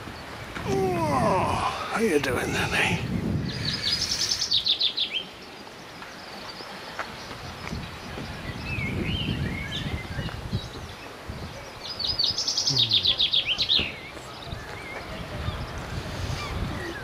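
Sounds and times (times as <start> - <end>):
songbird singing: 0.0 - 17.0.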